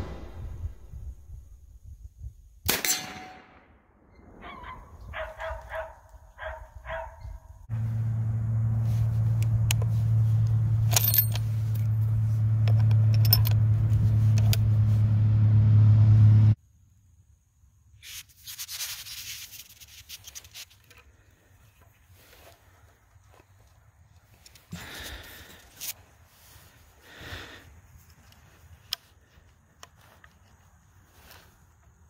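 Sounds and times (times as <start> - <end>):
loud steady low hum: 0.0 - 1.5, 7.7 - 16.6.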